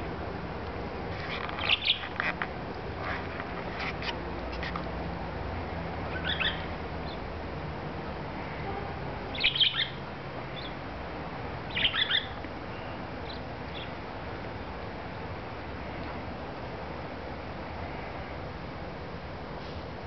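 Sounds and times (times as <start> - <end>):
budgerigar chirping: 1.6 - 2.3, 6.1 - 7.2, 9.3 - 10.0, 11.7 - 12.4.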